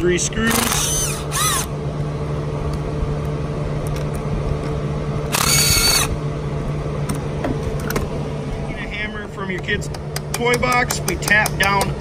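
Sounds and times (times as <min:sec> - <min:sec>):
cordless driver whining: 0:00.0 - 0:01.8, 0:05.2 - 0:06.2
steady low hum: 0:00.0 - 0:12.0.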